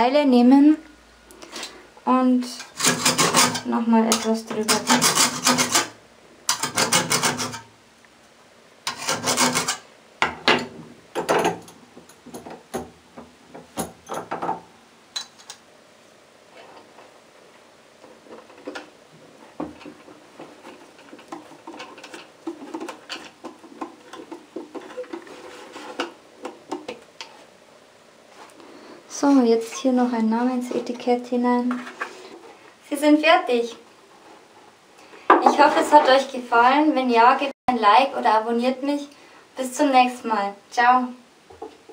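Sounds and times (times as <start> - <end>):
hand file rasping: 2.7 - 3.7, 4.6 - 7.7, 8.9 - 9.8.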